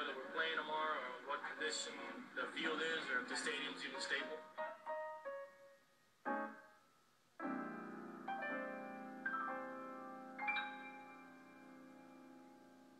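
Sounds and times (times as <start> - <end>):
piano music: 0.0 - 12.9.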